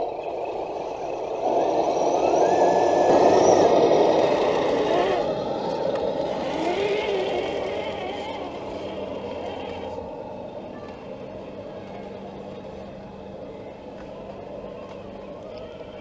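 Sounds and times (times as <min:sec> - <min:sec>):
rc car motor whining: 0:00.1 - 0:10.3.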